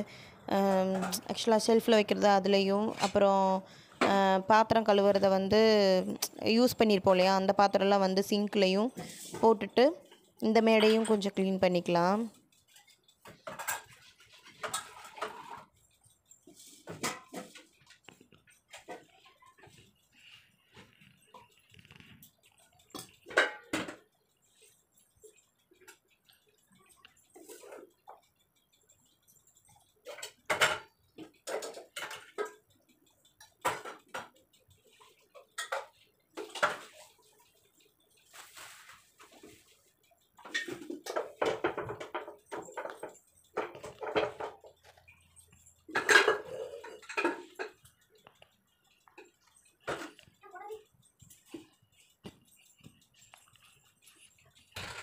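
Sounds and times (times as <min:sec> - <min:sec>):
steel utensils clinking: 0:40.4 - 0:48.5.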